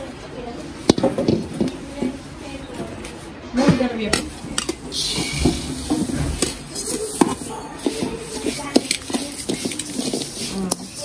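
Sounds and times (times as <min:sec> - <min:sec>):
metal ladle scraping a pan: 0:04.6 - 0:11.0.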